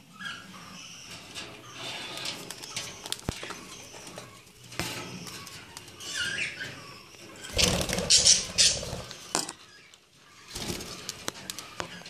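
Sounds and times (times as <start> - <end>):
parrots calling: 5.2 - 10.5.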